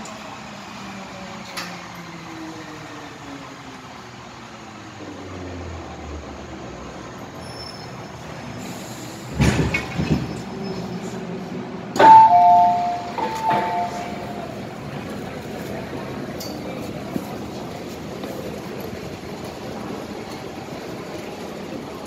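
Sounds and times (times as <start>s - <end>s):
steady train hum: 0.0s - 22.0s
train door clunk: 9.0s - 10.9s, 11.9s - 14.8s
two-note falling door chime: 12.0s - 14.4s.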